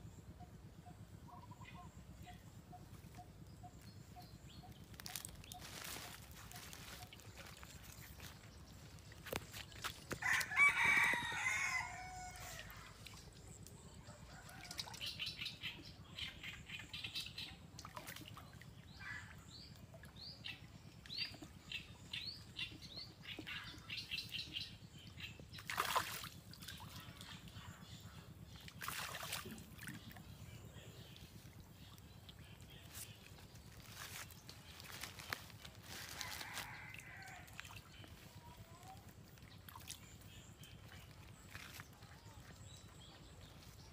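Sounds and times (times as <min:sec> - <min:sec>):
fish splashing in shallow water: 0:04.8 - 0:15.6, 0:17.6 - 0:20.2, 0:25.4 - 0:43.9
rooster crowing: 0:10.2 - 0:12.7.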